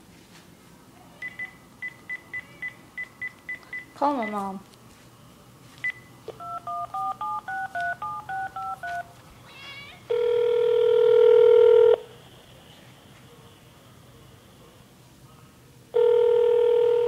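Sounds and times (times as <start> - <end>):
two-tone keypad beeps: 5.8 - 9.0
telephone ringing tone: 6.4 - 9.1, 10.1 - 12.0, 16.0 - 17.0.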